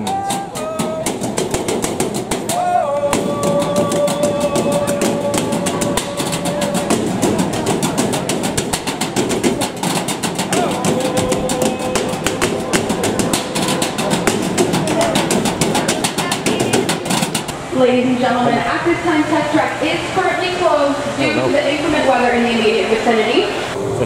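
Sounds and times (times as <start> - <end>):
drumsticks beating metal trash cans: 0.0 - 17.5.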